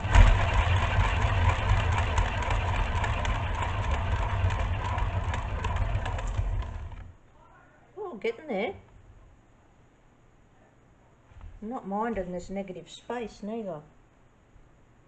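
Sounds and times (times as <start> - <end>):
turntable bearing rumbling: 0.0 - 7.2.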